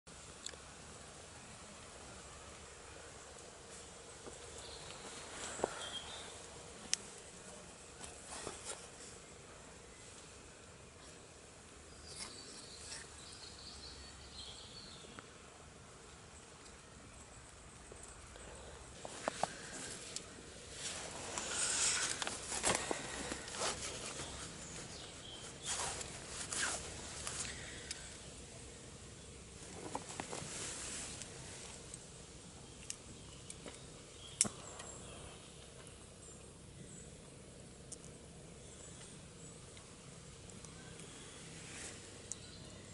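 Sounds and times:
low steady hiss: 0.1s - 42.9s
distant birds chirping: 2.5s - 30.4s, 31.3s - 42.9s
hands rustling leaves: 3.6s - 9.2s, 18.8s - 28.4s, 29.5s - 31.9s.

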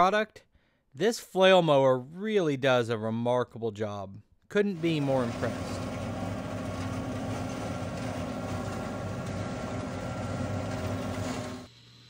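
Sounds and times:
flail mower spinning: 4.8s - 11.7s
tractor diesel engine under load: 4.8s - 11.7s.

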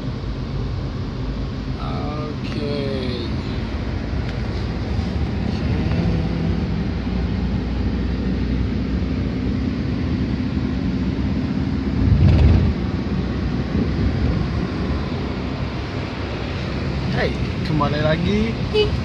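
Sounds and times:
engine and road rumble in car cabin: 0.0s - 19.0s.

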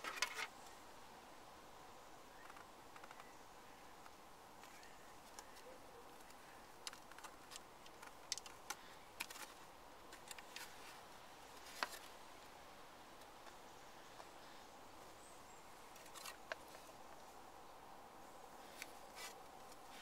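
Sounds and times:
plastic parts clicking: 6.2s - 10.7s.

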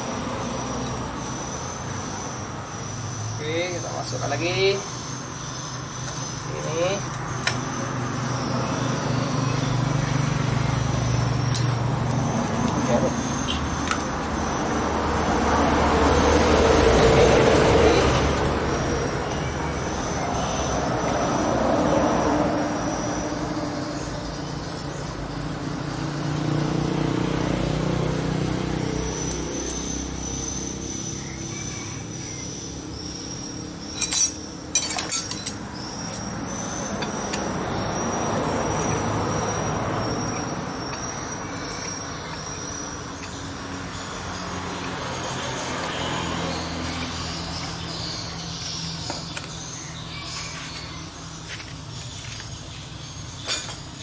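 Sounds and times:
road traffic rumbling: 0.0s - 54.0s
metal parts clinking: 33.9s - 36.3s, 53.4s - 54.0s.

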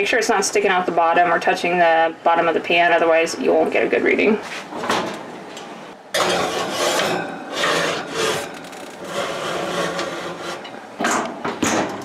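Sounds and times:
baking dish scraping on wire rack: 6.2s - 10.8s.

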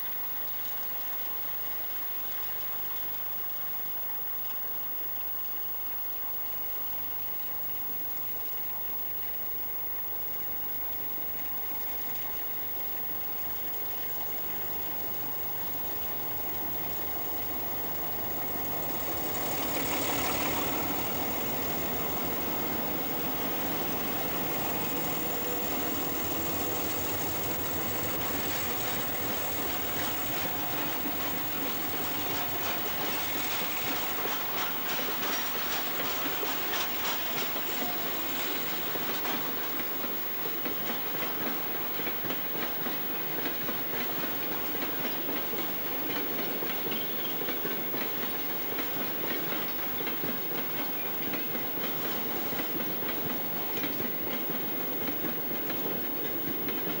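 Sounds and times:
diesel locomotive passing: 7.3s - 57.0s
wagon wheels clicking on rail joints: 18.8s - 57.0s.

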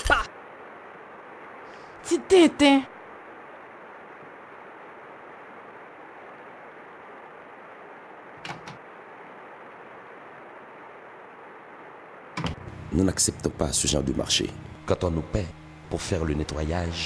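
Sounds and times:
low background hiss: 0.0s - 17.0s.

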